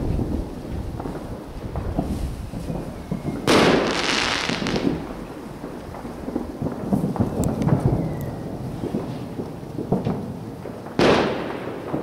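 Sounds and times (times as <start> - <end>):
distant fireworks booming: 0.0 - 12.0
loud crackling hiss: 0.0 - 12.0
sharp cracks: 3.2 - 12.0.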